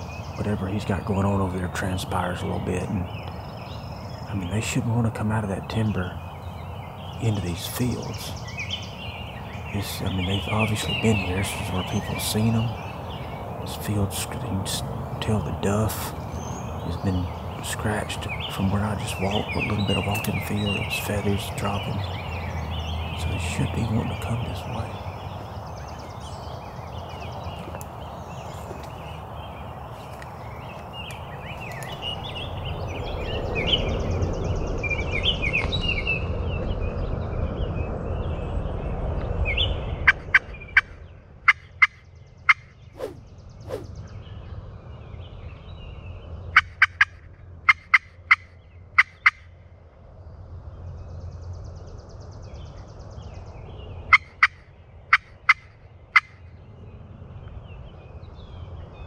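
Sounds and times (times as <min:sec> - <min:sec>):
songbirds chirping: 0:00.0 - 0:59.0
steady rushing noise: 0:43.0 - 0:44.0.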